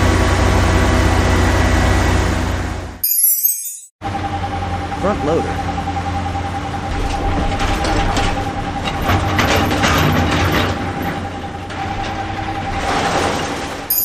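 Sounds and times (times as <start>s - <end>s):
diesel engine rumbling: 0.0s - 3.0s, 4.0s - 14.0s
sand rattling into truck: 7.1s - 13.9s.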